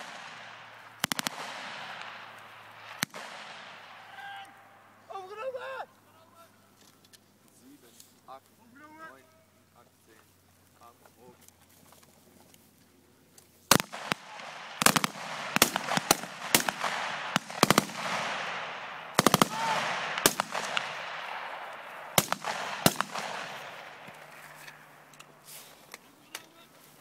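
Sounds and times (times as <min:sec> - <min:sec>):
rifle fire with echo: 0:00.0 - 0:04.3, 0:13.7 - 0:25.1.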